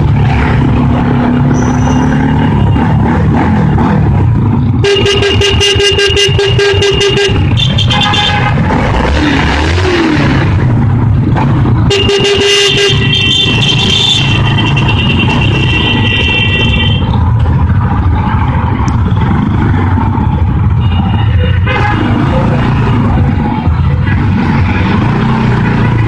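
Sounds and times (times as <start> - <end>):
motorcycle engine rumble: 0.0 - 8.9, 9.8 - 26.0
wind: 0.0 - 26.0
vehicle horns honking: 4.8 - 9.2, 11.8 - 17.2, 20.7 - 22.8.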